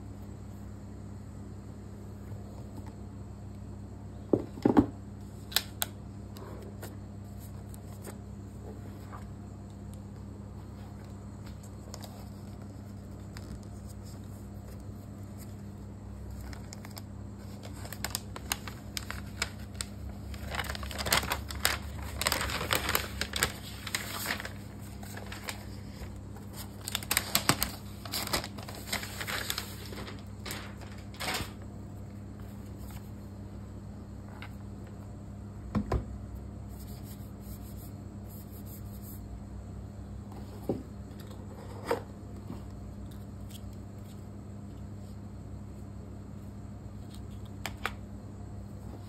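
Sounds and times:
low electrical hum: 0.0s - 49.0s
plastic wrap rustling and crinkling: 11.5s - 31.7s.

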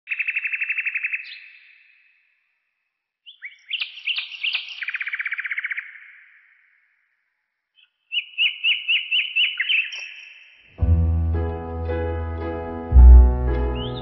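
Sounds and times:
songbird trilling and whistling: 0.1s - 1.9s, 3.3s - 6.4s, 7.8s - 10.6s, 13.8s - 14.0s.

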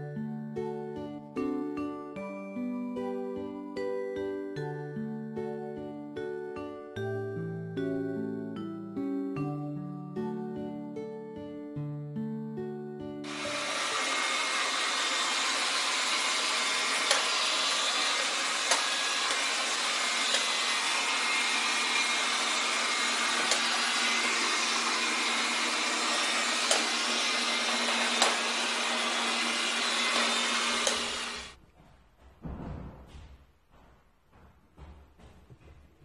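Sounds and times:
robot vacuum cleaner whirring: 13.3s - 31.6s.

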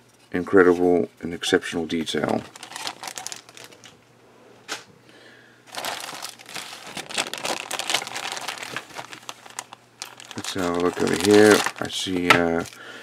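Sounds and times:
plastic bags crinkling: 2.2s - 4.0s, 5.7s - 12.8s.

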